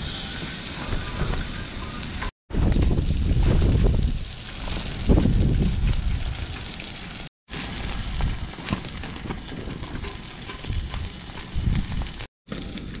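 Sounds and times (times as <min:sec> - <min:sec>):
meat sizzling on griddle: 0:00.0 - 0:13.0
burning wood crackling: 0:00.1 - 0:13.0
wind rumble on microphone: 0:00.9 - 0:06.7, 0:07.8 - 0:12.3.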